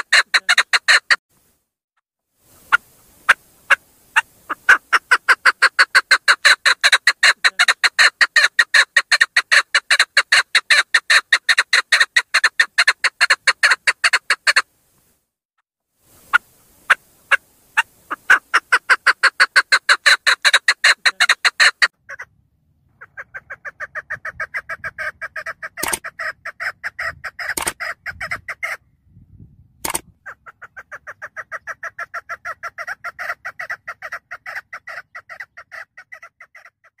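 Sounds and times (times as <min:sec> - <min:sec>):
partridge chattering call: 0:03.3 - 0:14.6, 0:16.3 - 0:22.3
sharp clicks: 0:25.8 - 0:26.1, 0:27.5 - 0:27.8, 0:29.8 - 0:30.2.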